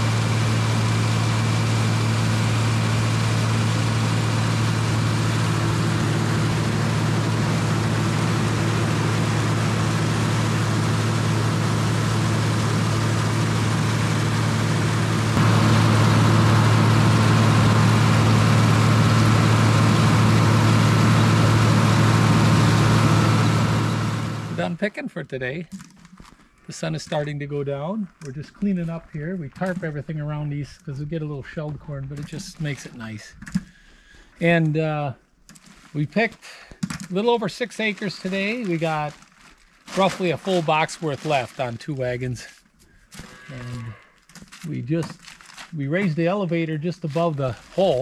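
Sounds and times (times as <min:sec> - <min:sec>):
tractor engine running under load: 0:00.0 - 0:24.8, 0:39.9 - 0:41.8, 0:47.0 - 0:48.0.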